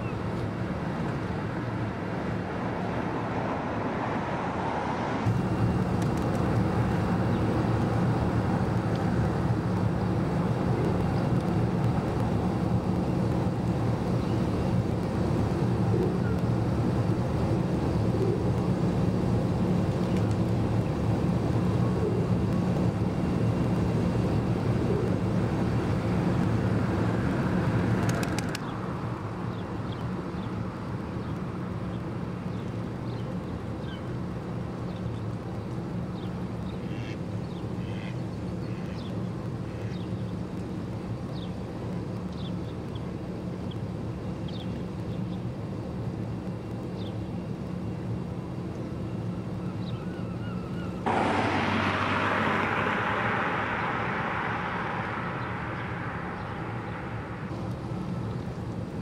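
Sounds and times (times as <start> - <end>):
engine machinery droning: 4.5 - 29.6, 47.8 - 59.0.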